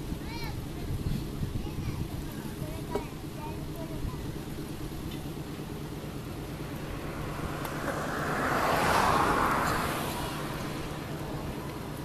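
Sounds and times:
diesel railcar engine idling: 0.0s - 7.9s.

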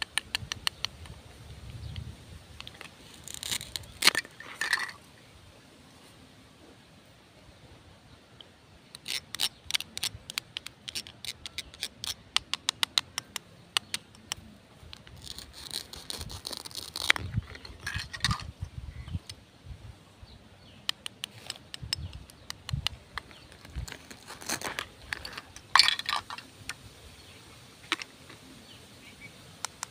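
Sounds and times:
plastic toys clicking and tapping: 9.0s - 15.4s
rasping plastic scrape: 14.9s - 18.5s.

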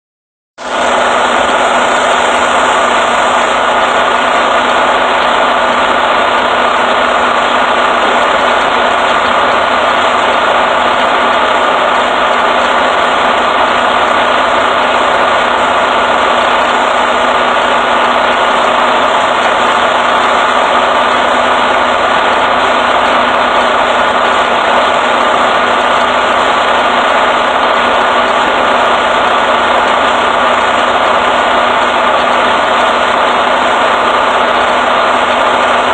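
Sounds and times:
diesel truck engine idling: 0.6s - 35.9s.

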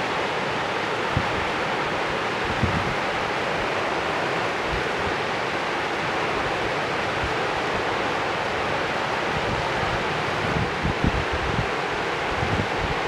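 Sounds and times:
river rushing: 0.0s - 13.0s
wind gusts buffeting microphone: 2.4s - 5.2s, 9.3s - 13.0s.

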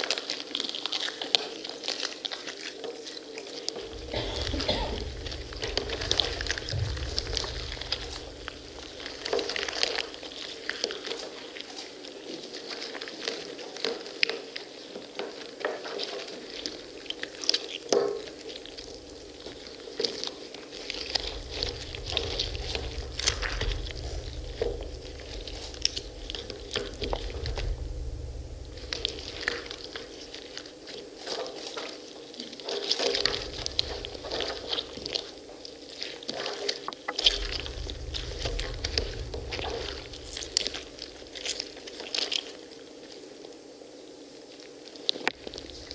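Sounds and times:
low rumble: 3.8s - 10.5s, 18.8s - 19.6s, 20.8s - 30.6s, 33.1s - 35.2s, 37.1s - 41.9s, 45.4s - 45.9s
fruit squishing wetly: 15.8s - 43.2s.

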